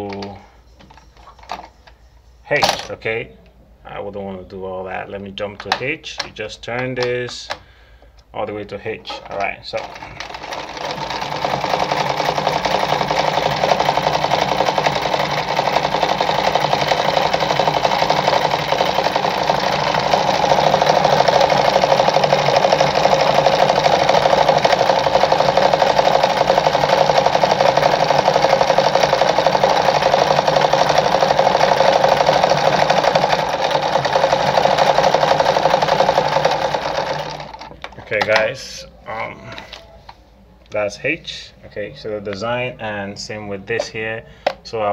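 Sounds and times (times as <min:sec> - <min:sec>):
sewing machine running: 0:09.7 - 0:37.8.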